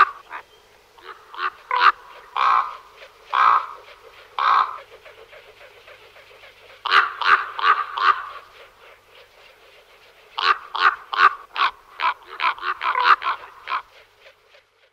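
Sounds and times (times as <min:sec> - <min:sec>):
raven croaking: 0:00.0 - 0:03.8, 0:04.4 - 0:05.0, 0:10.4 - 0:13.9.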